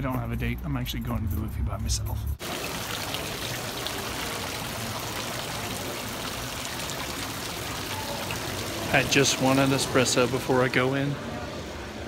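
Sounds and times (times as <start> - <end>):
fountain water splashing: 2.4 - 11.2.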